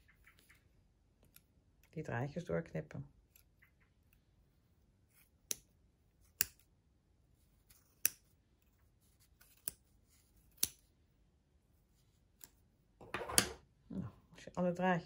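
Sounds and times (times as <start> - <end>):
scissors snipping yarn: 1.2 - 1.9, 4.8 - 6.7, 7.4 - 10.9, 11.9 - 12.7.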